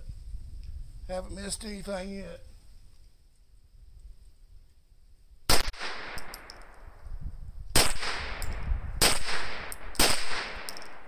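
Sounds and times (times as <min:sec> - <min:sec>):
gunshots with echo: 0:07.8 - 0:11.0.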